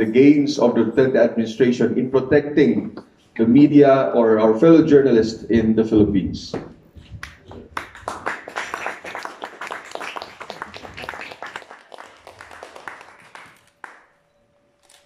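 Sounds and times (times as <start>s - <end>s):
audience applauding: 7.2s - 14.2s.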